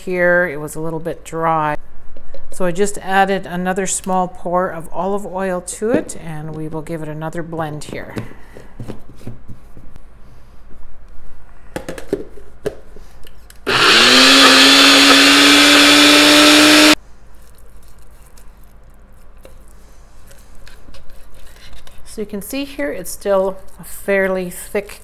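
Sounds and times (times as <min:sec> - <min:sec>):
blender motor whining: 0:13.7 - 0:17.0.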